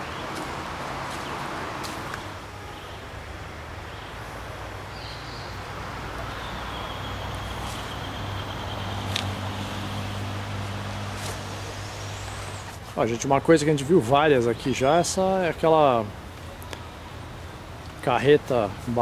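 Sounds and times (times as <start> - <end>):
vehicle engine running: 6.8 - 12.8.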